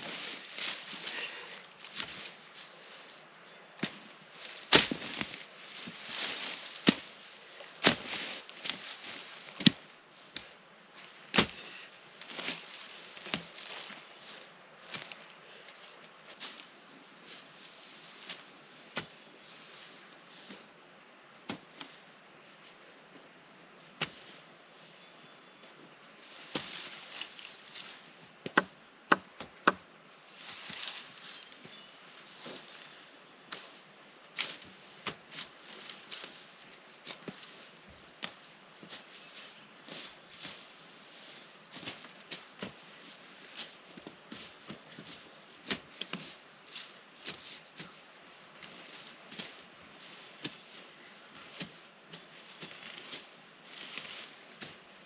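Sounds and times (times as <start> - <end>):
insects chirping: 0.0 - 55.0
sharp knocks: 28.4 - 29.8.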